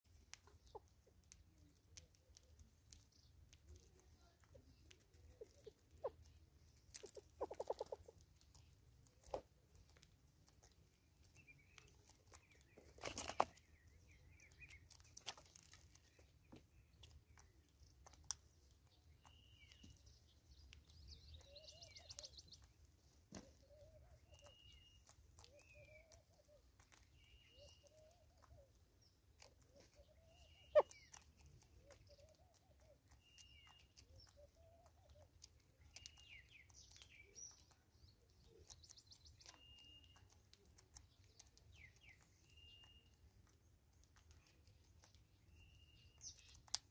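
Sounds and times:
bird scuffle: 4.7 - 37.8.

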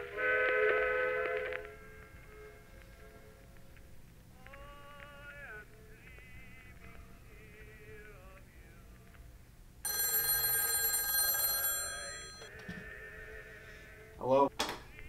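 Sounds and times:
telephone bell ringing: 9.8 - 12.6.

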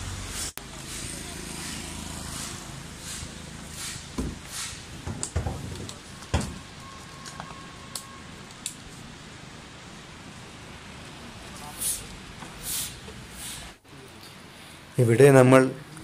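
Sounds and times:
motorbike engine passing: 0.0 - 4.9
dull knocks and thumps: 4.2 - 6.6.

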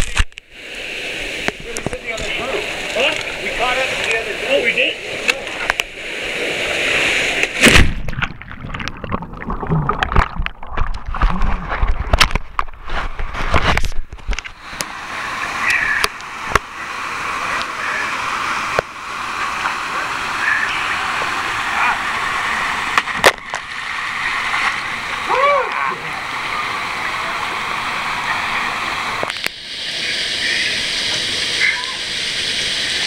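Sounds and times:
small waterfall rushing: 0.1 - 7.7, 14.4 - 33.0
underwater gurgling and sloshing: 0.1 - 25.3
splash of person jumping in water: 7.4 - 9.0.

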